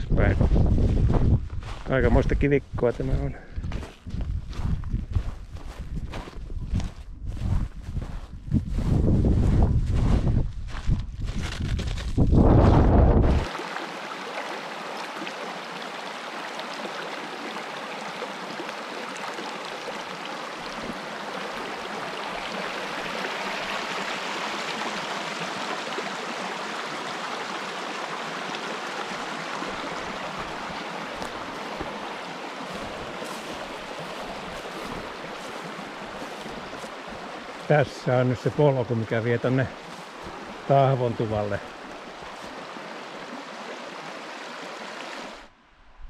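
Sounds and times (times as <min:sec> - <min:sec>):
wind gust on microphone: 0:00.0 - 0:02.8, 0:03.6 - 0:13.5
brook flowing: 0:13.3 - 0:45.6.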